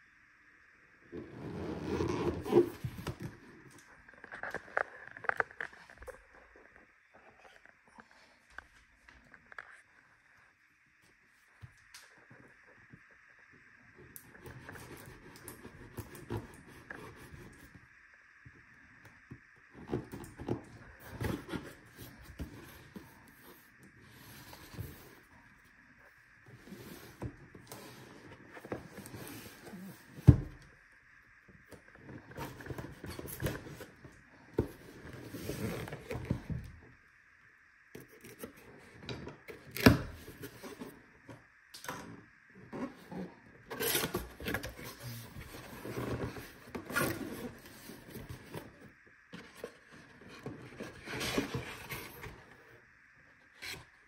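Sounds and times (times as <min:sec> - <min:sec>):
cardboard box scraping and rustling: 0:01.2 - 0:03.5, 0:19.9 - 0:25.3, 0:34.6 - 0:36.6, 0:42.8 - 0:52.6.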